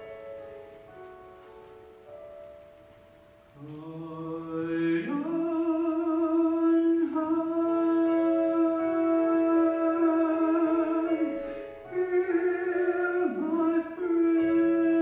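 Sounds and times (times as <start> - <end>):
person singing ballad: 3.6 - 15.0.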